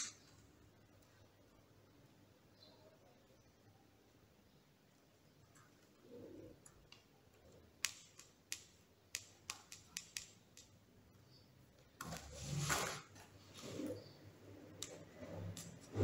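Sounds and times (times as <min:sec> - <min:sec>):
small sharp clicks: 0:07.8 - 0:10.8.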